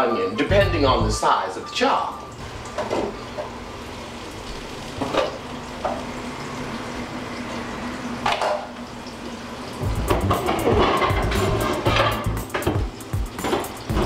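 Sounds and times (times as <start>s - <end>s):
pans clattering: 10.1s - 14.0s.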